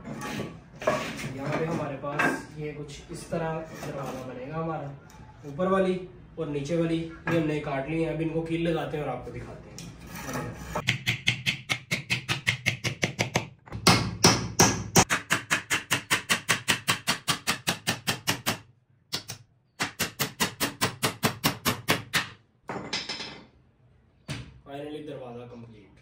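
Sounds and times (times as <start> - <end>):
hammer driving nails into wood: 10.8 - 22.4.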